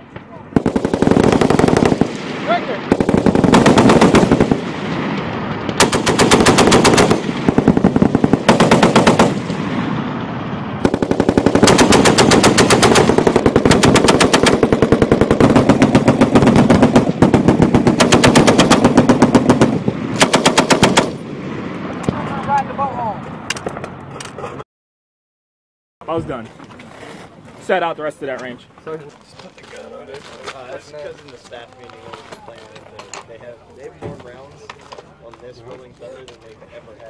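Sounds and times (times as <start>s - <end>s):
distant machine guns firing: 0.5s - 10.0s, 10.8s - 21.2s
machine gun bursts: 0.6s - 2.0s, 2.9s - 4.5s, 5.8s - 9.4s, 10.9s - 21.2s.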